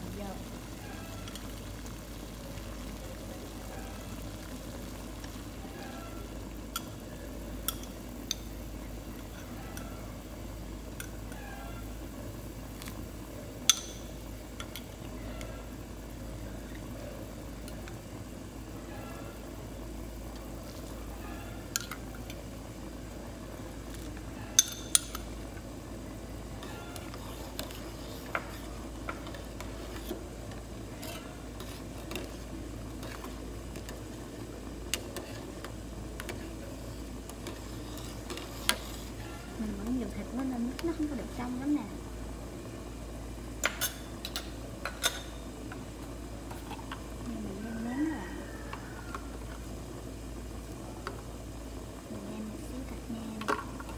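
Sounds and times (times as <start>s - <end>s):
water boiling in a pot: 0.0s - 53.9s
ladle clinking against pot: 24.6s - 25.2s.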